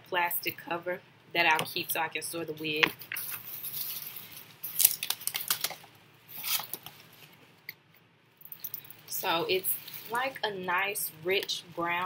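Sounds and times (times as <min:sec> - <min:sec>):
plastic packaging rustling: 0:03.0 - 0:07.6, 0:08.6 - 0:10.6.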